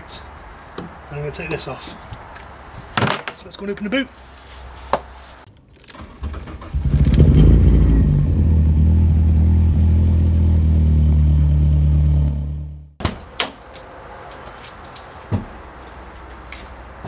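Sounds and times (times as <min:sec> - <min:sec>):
car engine starting and idling: 0:05.8 - 0:13.0.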